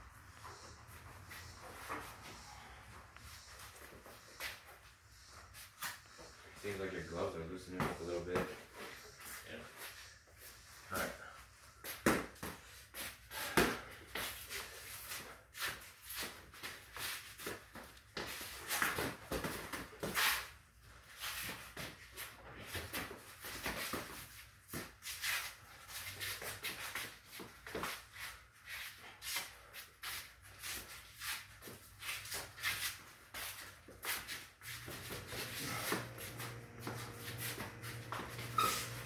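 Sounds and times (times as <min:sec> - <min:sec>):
feet shuffling on concrete: 0:23.7 - 0:39.0.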